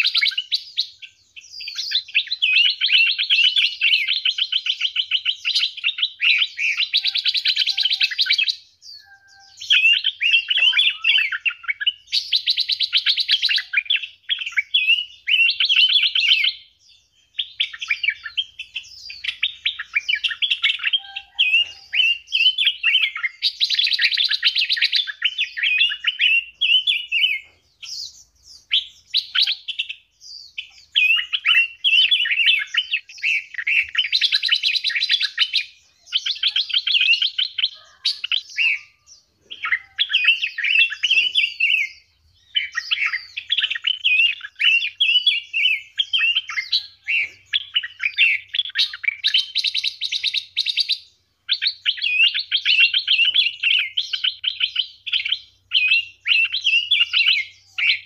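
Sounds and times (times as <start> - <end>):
songbirds warbling and trilling: 0.0 - 58.0.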